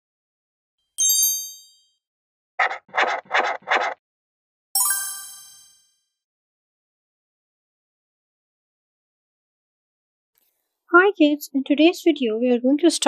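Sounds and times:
bright chime: 1.0s - 1.9s, 4.8s - 6.0s
pencil scratching strokes: 2.6s - 4.0s.

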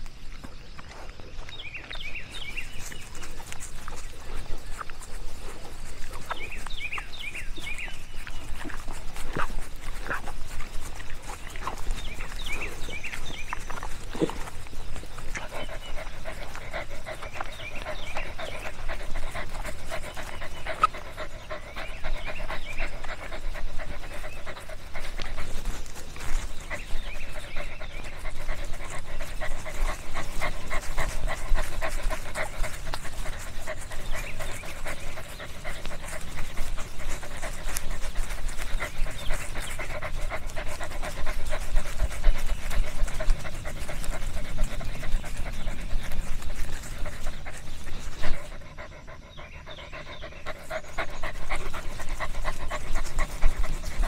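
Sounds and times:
dog panting: 1.0s - 54.0s.

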